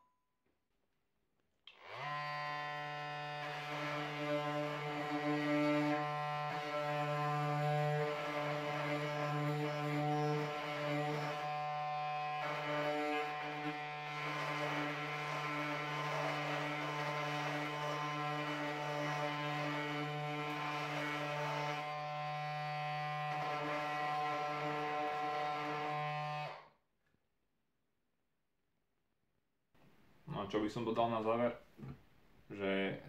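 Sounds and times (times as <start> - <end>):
oscillating multi-tool sanding wood: 1.7 - 26.7.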